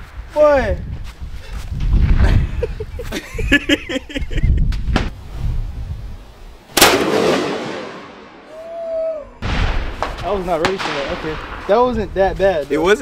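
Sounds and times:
gunshot with echo: 0:06.8 - 0:08.3, 0:09.4 - 0:11.7.

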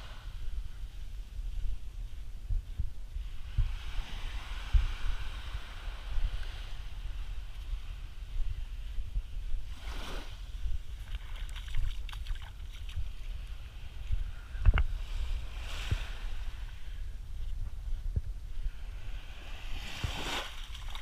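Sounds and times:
wind rumbling on microphone: 0:00.0 - 0:21.0
small waves washing onto sand: 0:03.2 - 0:14.2, 0:14.9 - 0:17.0, 0:18.6 - 0:21.0.

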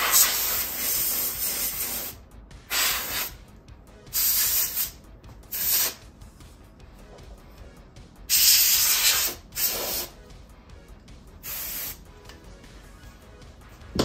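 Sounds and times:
compressed air duster hissing: 0:00.0 - 0:03.4, 0:04.1 - 0:06.0, 0:08.3 - 0:10.2, 0:11.4 - 0:12.0.

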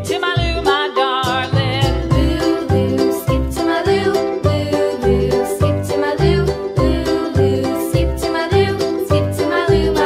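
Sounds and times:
cheerful children's music: 0:00.0 - 0:10.0.

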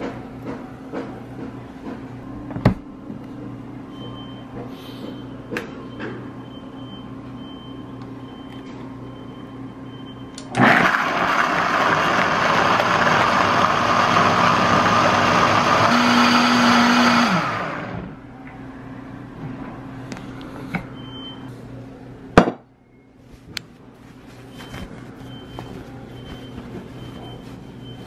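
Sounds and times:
blender grinding: 0:10.6 - 0:18.1.

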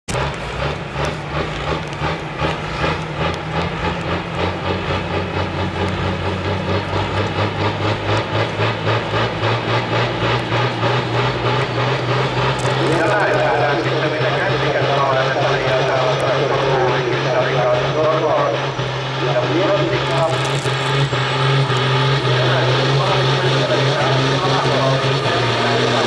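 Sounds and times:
pulsing diesel engine drone: 0:00.0 - 0:26.0.

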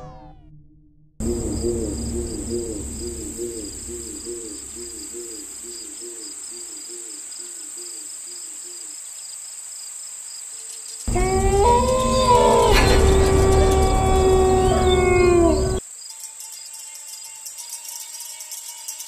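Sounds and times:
low repeating chirping call: 0:01.2 - 0:07.2, 0:11.1 - 0:15.8
crickets trilling: 0:01.2 - 0:19.0.

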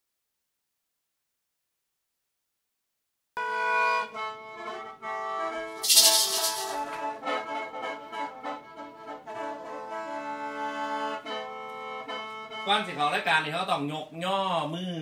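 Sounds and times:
instrumental music: 0:03.5 - 0:13.1.

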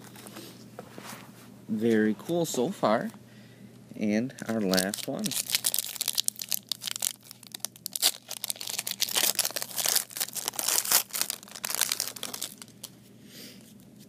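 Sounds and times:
foil wrapper crinkling: 0:04.4 - 0:13.0.

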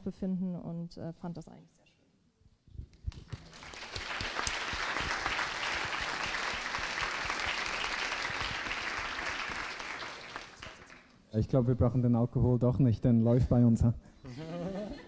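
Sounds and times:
audience applauding: 0:03.1 - 0:11.2.

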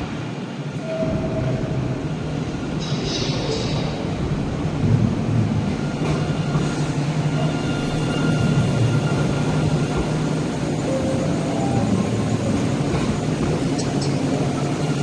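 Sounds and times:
tram humming past: 0:00.0 - 0:15.0.

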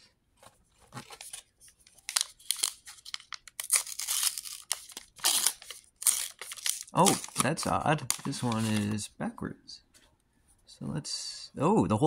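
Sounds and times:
card pack wrapper tearing and crinkling: 0:00.9 - 0:09.0.

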